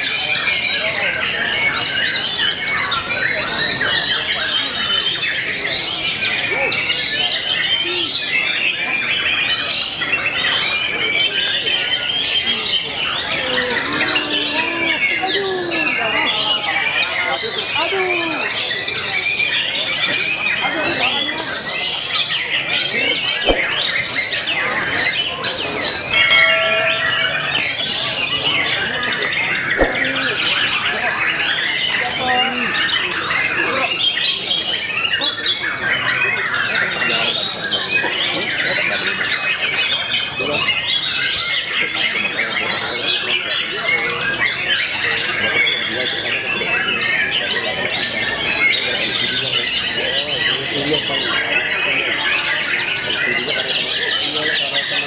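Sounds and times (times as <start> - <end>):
birds singing with whistles and chatter: 0.0 - 55.0
bell-like ringing tone: 26.0 - 28.4.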